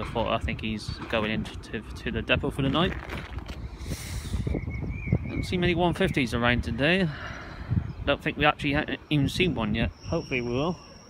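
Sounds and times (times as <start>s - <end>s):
hissing rush: 3.6s - 4.6s
faint high wavering whine: 8.8s - 11.0s.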